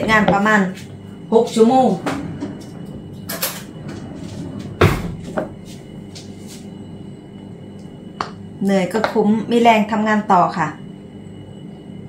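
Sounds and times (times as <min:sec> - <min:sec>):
cupboard door shutting: 0:04.8 - 0:05.2.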